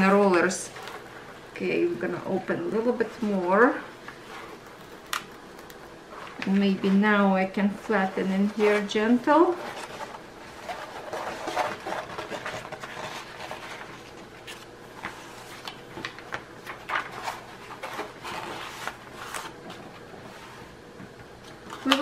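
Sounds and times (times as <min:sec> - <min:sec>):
paper sheet rustling and crinkling: 0:02.7 - 0:07.2, 0:07.8 - 0:20.8.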